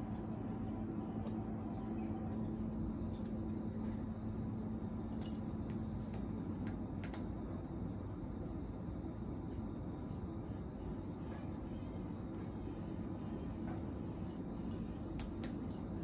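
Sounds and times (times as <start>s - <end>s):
steady low hum: 0.0s - 16.0s
parrot beak crunching food: 5.1s - 7.4s.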